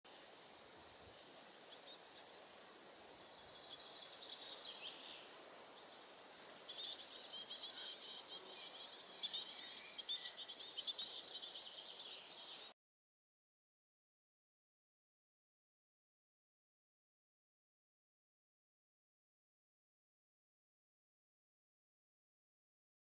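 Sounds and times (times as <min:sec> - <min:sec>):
songbirds singing: 0:00.1 - 0:12.8.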